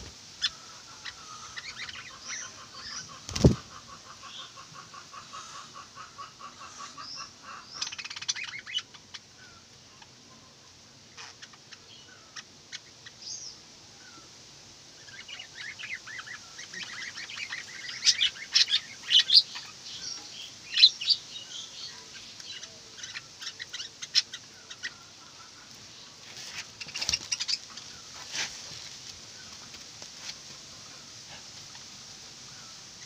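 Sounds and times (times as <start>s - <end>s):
budgerigars chirping and chattering: 0.4s - 10.2s, 11.1s - 13.6s, 15.0s - 28.2s.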